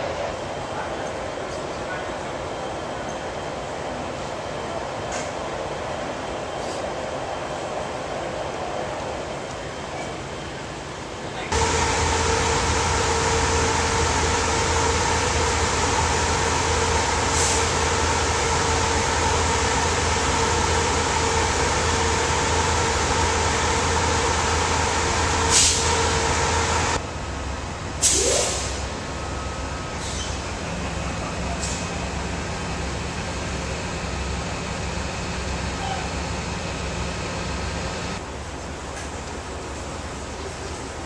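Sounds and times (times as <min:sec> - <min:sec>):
train equipment humming and hissing: 0:00.0 - 0:41.0
brief squeal: 0:29.3 - 0:30.5.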